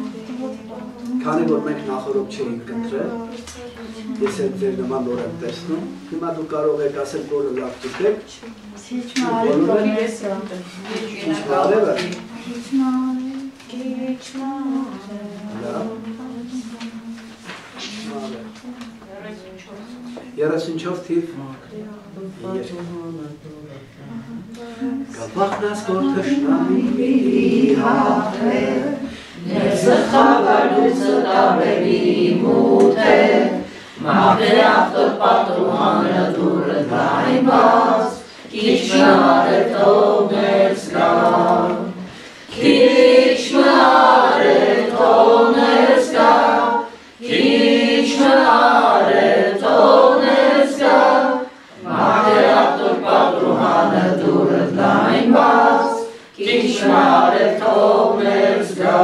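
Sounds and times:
unaccompanied hymn singing: 0.0 - 59.0
singers breathing: 29.0 - 29.4, 33.6 - 34.0, 42.0 - 42.5, 56.1 - 56.4.

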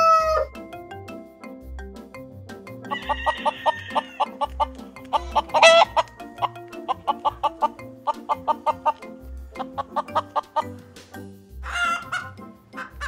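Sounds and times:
chicken squawk: 0.0 - 0.5, 2.9 - 10.8, 11.6 - 13.0
background music: 0.0 - 13.0
chickens clucking: 2.9 - 13.0.

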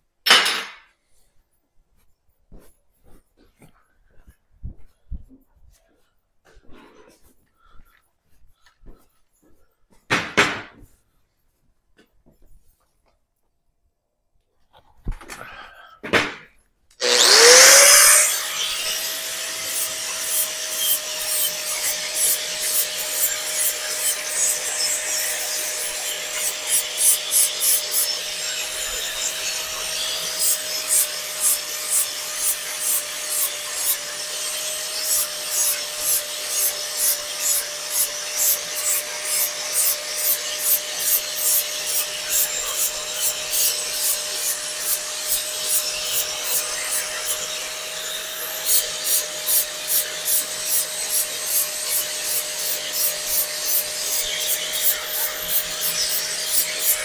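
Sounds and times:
angle grinder whining: 17.0 - 57.0
grinding disc scraping metal: 17.0 - 57.0.

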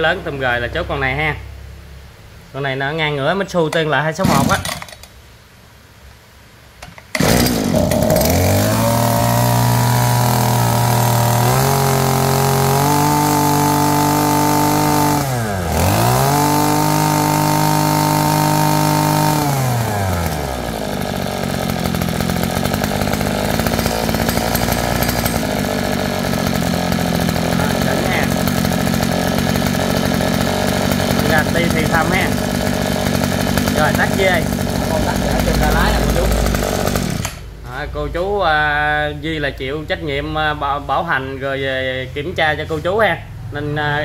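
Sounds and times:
brush cutter engine revving: 4.2 - 5.0, 7.1 - 37.8.

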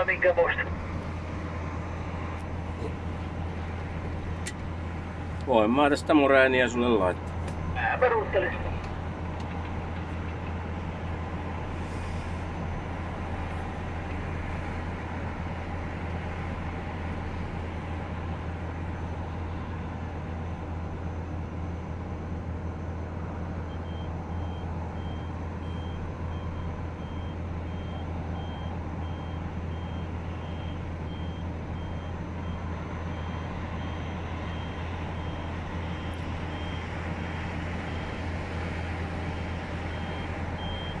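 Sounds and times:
diesel engine hum: 0.0 - 41.0
reversing alarm beeping: 23.7 - 38.3, 39.8 - 41.0.

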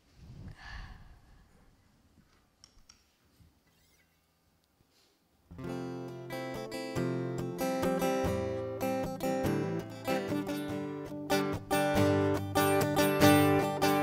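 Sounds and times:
acoustic guitar strumming chords: 5.5 - 14.0.

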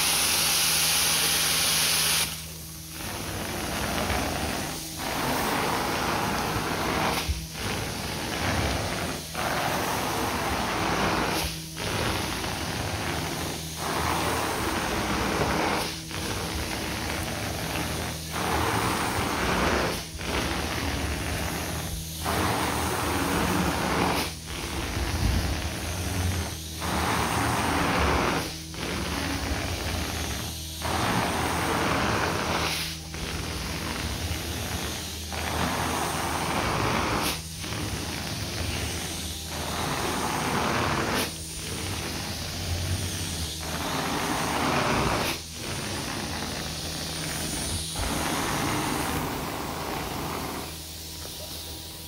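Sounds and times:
carpet extractor humming: 0.0 - 52.0
spray and suction hiss: 0.0 - 52.0.

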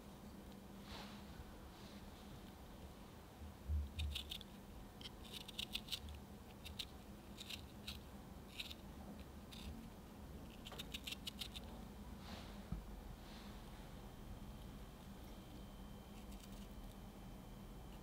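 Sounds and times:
knife shaving peach: 4.0 - 9.9, 10.5 - 11.7, 16.0 - 17.0.

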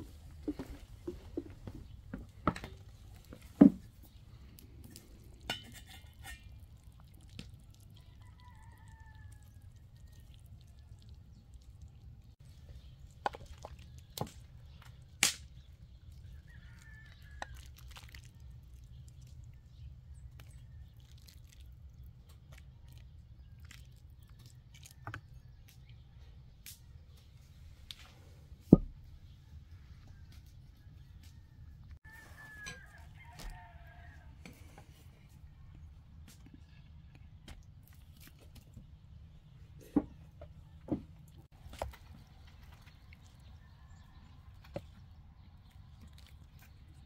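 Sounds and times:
metal ladle clinking against pot: 5.4 - 6.6.

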